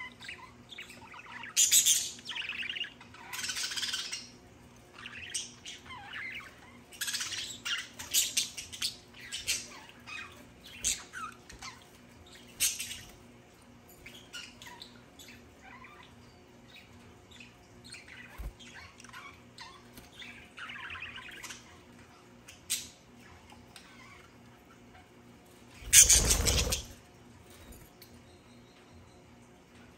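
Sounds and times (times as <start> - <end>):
budgerigars chirping and squawking: 0.0 - 13.4, 14.0 - 27.0.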